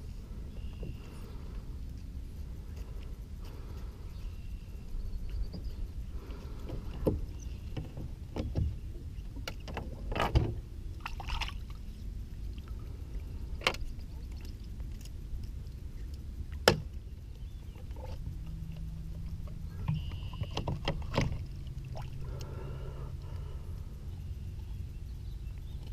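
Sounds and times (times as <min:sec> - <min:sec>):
splashing water: 0:11.0 - 0:11.8.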